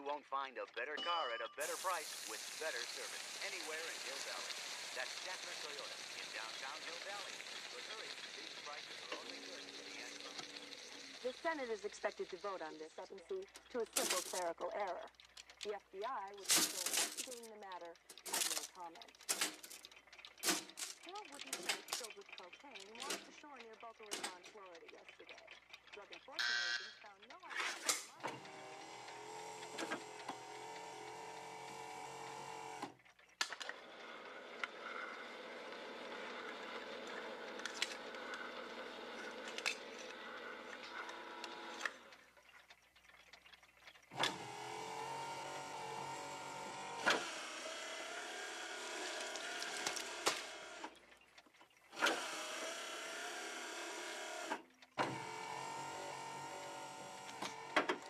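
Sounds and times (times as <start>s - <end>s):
can opener cutting can: 1.6s - 12.3s, 27.5s - 42.0s, 44.0s - 51.0s, 51.9s - 58.0s
small electric motors whirring: 1.6s - 43.0s, 43.6s - 51.2s, 51.8s - 58.0s
sharp clicks: 3.2s - 31.4s.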